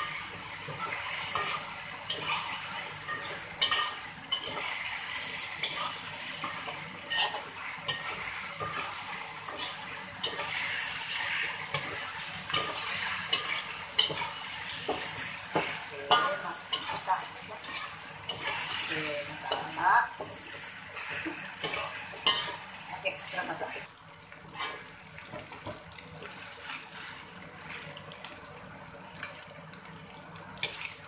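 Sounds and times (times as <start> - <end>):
metal spatula scraping a wok: 0.0 - 22.6
chicken sizzling in a wok: 0.0 - 31.0.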